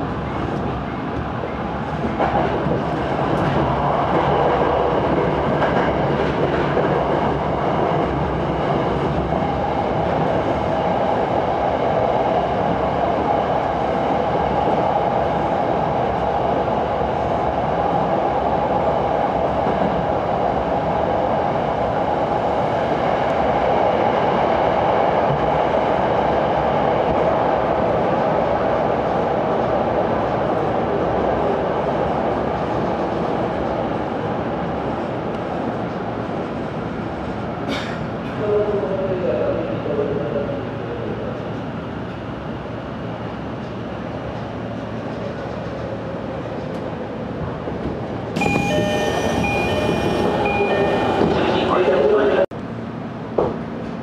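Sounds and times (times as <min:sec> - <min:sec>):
train wheels on rails: 0:00.0 - 0:16.5, 0:43.5 - 0:51.7.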